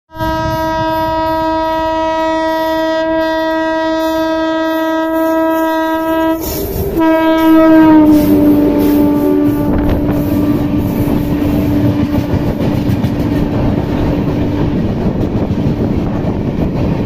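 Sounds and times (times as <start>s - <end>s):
locomotive horn blasting: 0.1s - 13.2s
train wheels rumbling and clattering: 3.5s - 17.0s.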